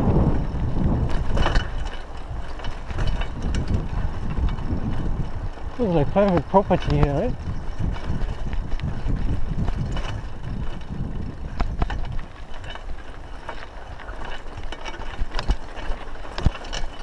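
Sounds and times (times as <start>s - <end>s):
low rumble: 0.0s - 6.1s
bicycle tyres on loose dirt: 0.0s - 17.0s
bike rattling and knocking: 0.0s - 17.0s.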